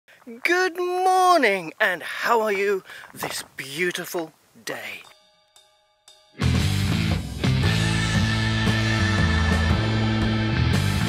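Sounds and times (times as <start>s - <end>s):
guitar playing sustained chords: 5.1s - 11.0s.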